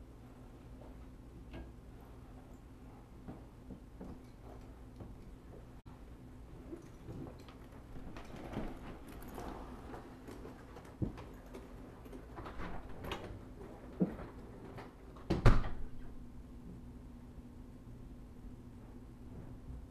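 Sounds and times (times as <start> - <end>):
footsteps in a room: 0.0 - 5.8, 18.5 - 19.9.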